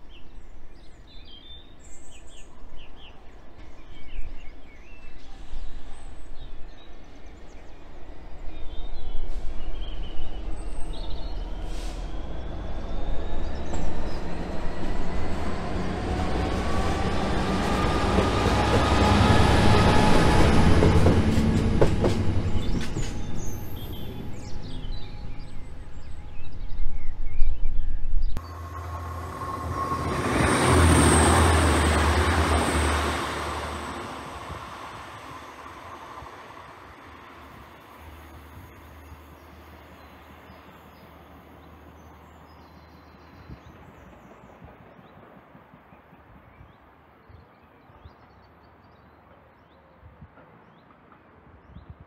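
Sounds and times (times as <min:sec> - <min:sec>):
diesel train passing: 0:00.2 - 0:46.1
diesel locomotive passing: 0:00.3 - 0:46.0.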